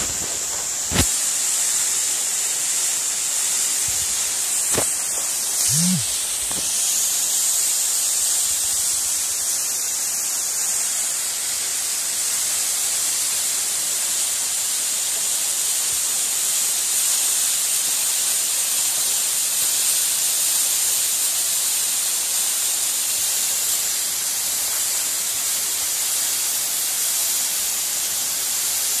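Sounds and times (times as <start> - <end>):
waterfall rushing: 0.0 - 7.8.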